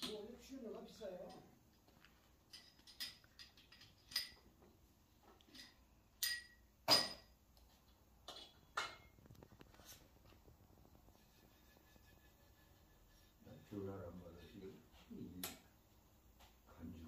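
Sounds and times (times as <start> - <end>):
light metallic clinks: 1.2 - 4.5, 5.4 - 7.3.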